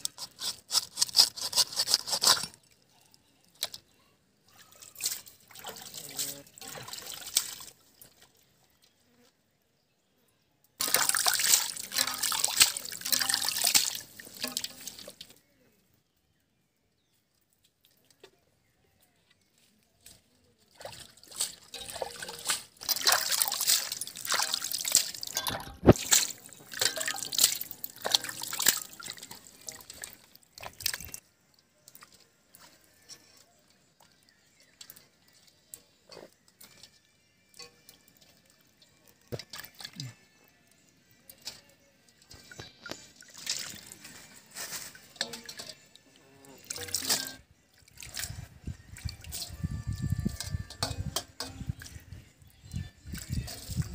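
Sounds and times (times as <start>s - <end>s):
water splashing as hands rinse fish: 5.0s - 8.2s, 10.8s - 15.3s, 20.8s - 31.2s, 43.2s - 44.1s
faint water drips: 10.7s - 15.8s, 16.9s - 53.9s.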